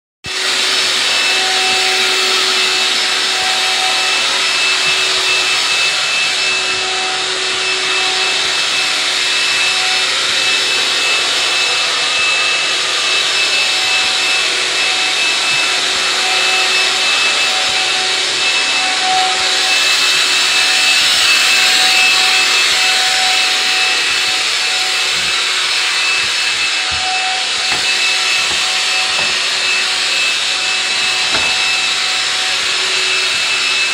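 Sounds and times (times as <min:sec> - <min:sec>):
sprayer motor whine: 0:00.2 - 0:33.9
spray hissing: 0:19.3 - 0:33.9.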